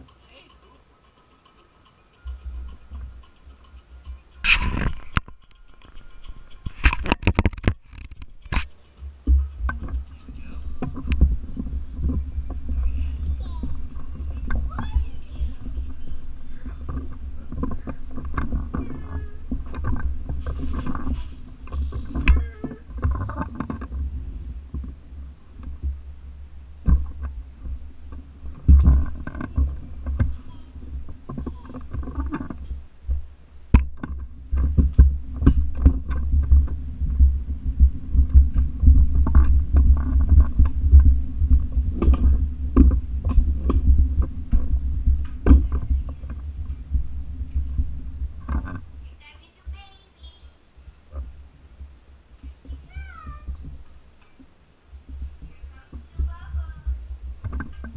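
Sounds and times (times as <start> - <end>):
tricycle frame rattling and clicking: 0.0 - 25.9, 26.9 - 32.8
tricycle wheels rumbling: 0.0 - 57.9.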